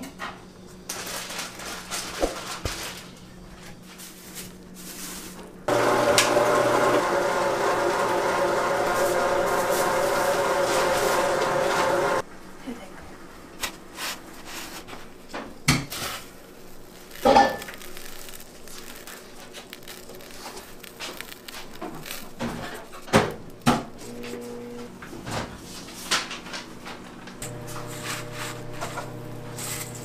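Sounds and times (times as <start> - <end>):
containers and utensils clattering: 17.0 - 24.4, 25.1 - 30.0.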